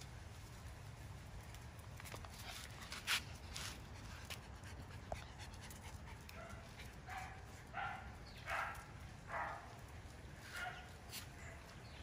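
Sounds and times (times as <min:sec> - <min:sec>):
puppy barking: 0:06.3 - 0:09.8, 0:10.5 - 0:11.7.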